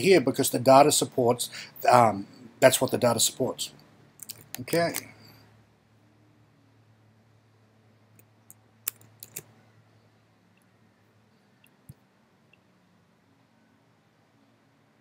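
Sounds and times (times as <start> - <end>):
low steady hum: 0.0 - 15.0
mouse and keyboard clicks: 8.2 - 9.5.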